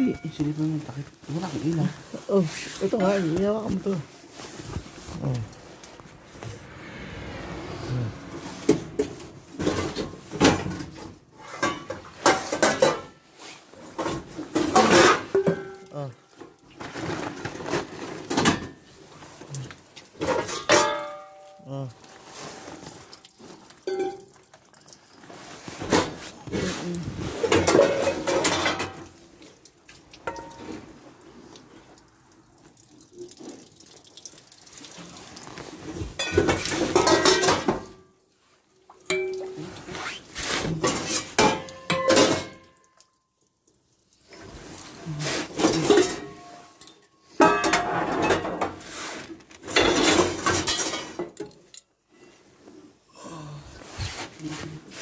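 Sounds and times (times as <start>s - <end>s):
metal pots and pans clattering: 8.7s - 18.9s, 20.2s - 21.6s, 23.8s - 24.5s, 25.8s - 29.2s, 30.2s - 30.9s, 36.0s - 38.1s, 39.0s - 39.9s, 40.5s - 42.9s, 45.4s - 48.9s, 49.6s - 51.8s.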